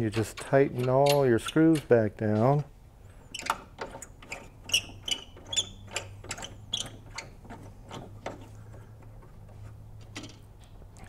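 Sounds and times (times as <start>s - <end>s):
screws tightening metallic clicks: 0.0s - 2.6s, 3.3s - 8.6s.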